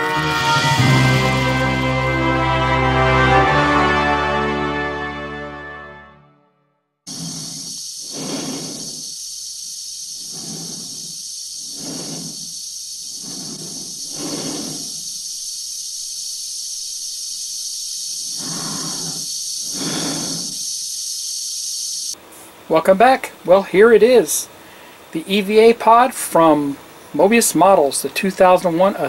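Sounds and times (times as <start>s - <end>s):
slow breaths inside helmet: 7.1s - 9.2s, 10.2s - 12.6s, 13.2s - 15.1s, 18.4s - 20.6s
air supply hissing: 7.1s - 29.0s.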